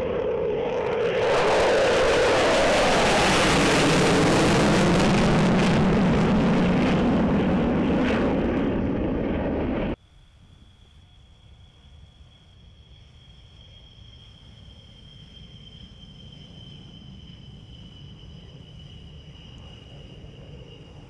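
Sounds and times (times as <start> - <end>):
jet fighter roaring: 0.0 - 10.0.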